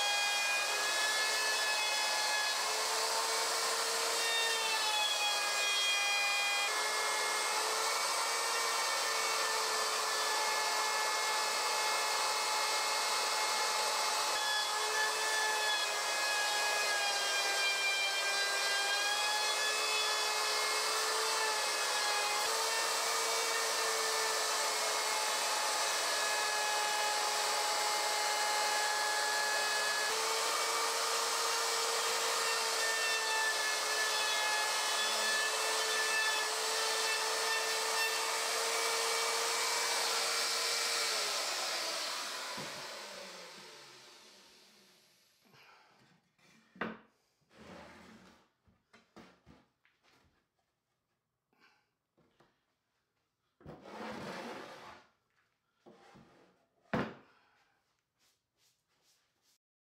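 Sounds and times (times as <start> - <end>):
router cutting wood: 0.0 - 45.2.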